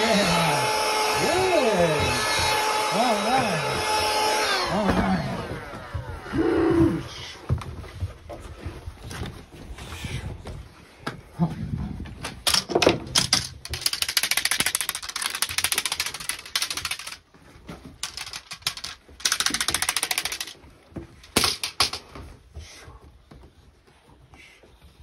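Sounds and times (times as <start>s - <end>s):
dog claws clattering on wooden deck: 12.2s - 22.2s.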